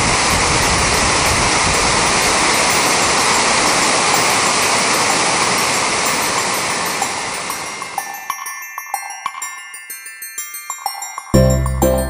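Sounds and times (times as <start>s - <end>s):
waterfall rushing: 0.0s - 7.9s.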